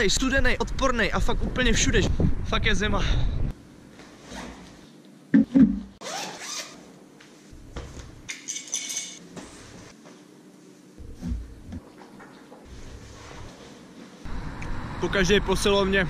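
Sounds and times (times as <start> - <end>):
zippers rasping open: 6.0 - 6.8.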